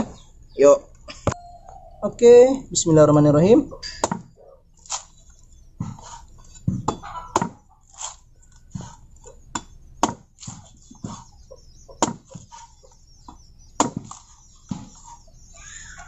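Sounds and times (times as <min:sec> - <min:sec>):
blade chopping into coconut: 0:06.8 - 0:08.2, 0:09.6 - 0:11.3, 0:12.0 - 0:12.7, 0:13.8 - 0:15.1.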